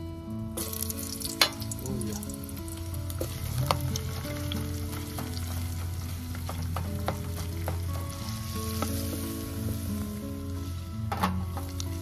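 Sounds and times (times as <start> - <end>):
soft background music: 0.0 - 12.0
onions sizzling in hot oil: 0.6 - 12.0
wooden spatula scraping a pot: 3.1 - 12.0.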